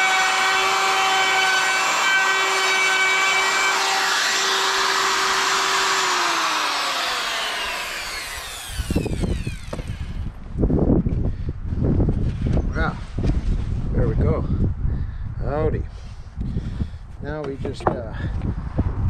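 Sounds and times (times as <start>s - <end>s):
power tool motor whining: 0.0s - 10.4s.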